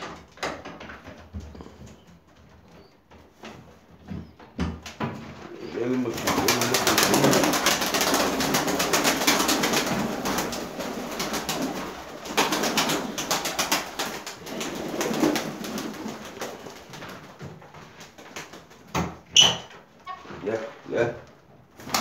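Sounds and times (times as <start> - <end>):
pigeon wings clattering: 4.8 - 19.2, 21.8 - 22.0
pigeons cooing: 5.4 - 17.0.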